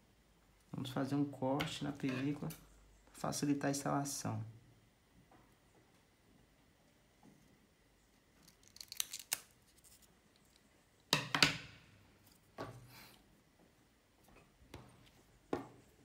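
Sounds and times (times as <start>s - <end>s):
scissors snipping plastic film: 8.4s - 10.0s.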